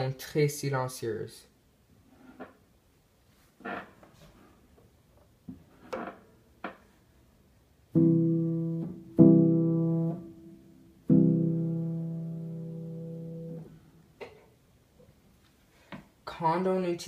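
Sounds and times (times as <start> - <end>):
quiet piano notes: 7.9 - 13.8.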